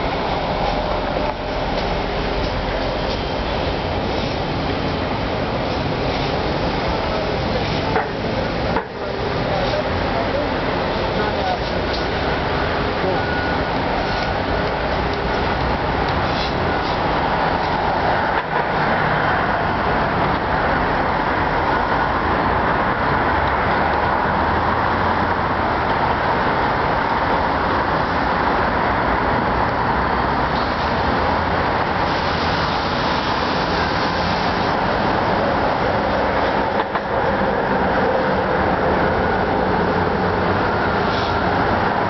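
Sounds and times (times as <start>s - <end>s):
road traffic rushing: 0.0s - 42.0s.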